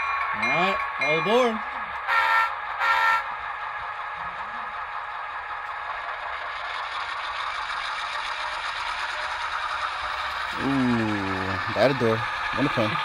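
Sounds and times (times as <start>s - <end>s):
model diesel engine running: 0.0s - 13.0s
model train horn blasts: 2.1s - 3.3s.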